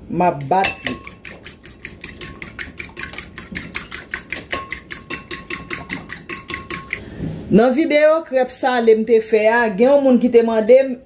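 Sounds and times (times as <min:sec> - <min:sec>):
fork beating eggs in bowl: 0:00.2 - 0:07.0.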